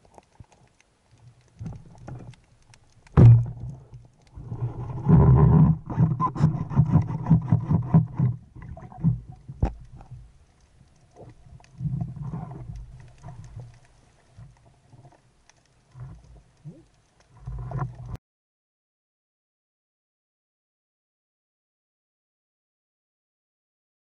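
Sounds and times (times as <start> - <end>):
muffled underwater rumble: 0.0 - 18.2
small clicks and knocks: 0.0 - 18.2.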